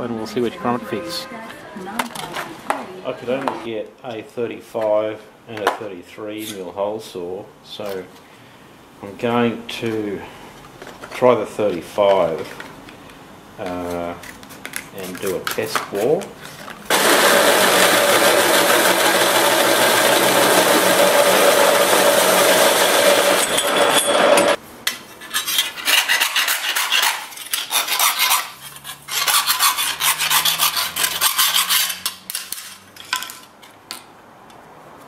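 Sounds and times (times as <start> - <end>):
hole saw cutting steel: 16.9 - 24.6, 25.3 - 32.3
file rasping on metal: 25.1 - 32.2.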